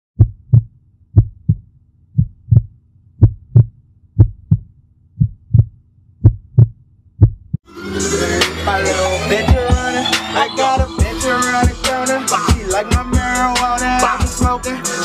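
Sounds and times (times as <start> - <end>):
heartbeat double thump: 0.2 - 7.6.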